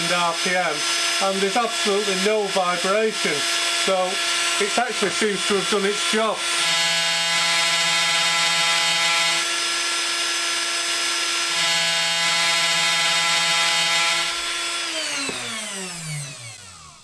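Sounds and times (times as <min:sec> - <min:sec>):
spindle motor high whine: 0:11.3 - 0:17.0.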